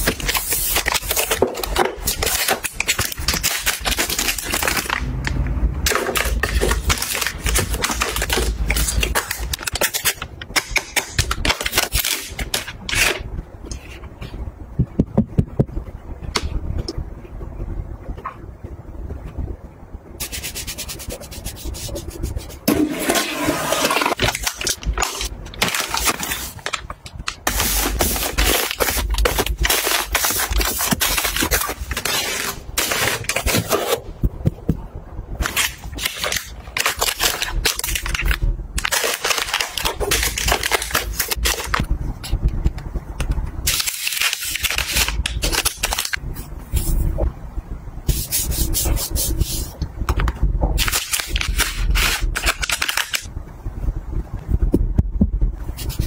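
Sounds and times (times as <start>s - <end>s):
plastic packs crinkling: 0.0s - 13.2s, 23.1s - 33.8s, 35.4s - 41.8s, 50.8s - 53.3s.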